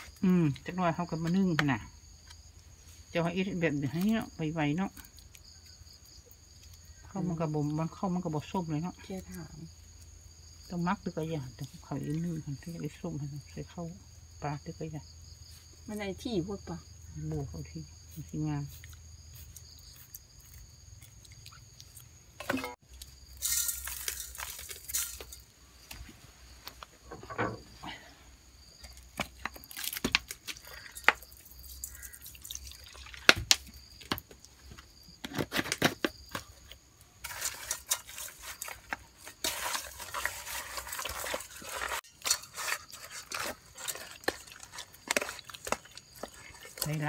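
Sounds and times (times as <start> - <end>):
sauce pouring into steel pot: 32.0 - 33.3.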